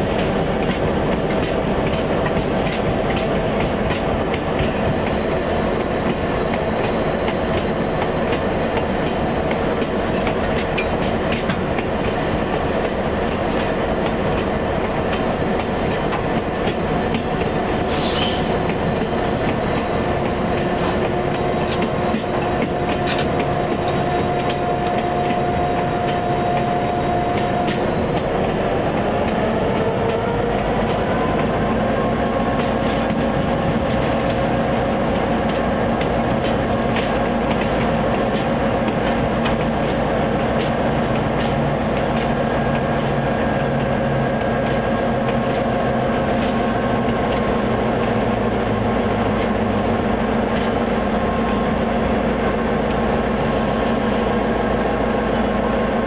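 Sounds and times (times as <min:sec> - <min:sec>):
diesel locomotive engine running: 0:00.0 - 0:56.0
wheels clicking over rail joints: 0:32.4 - 0:43.2.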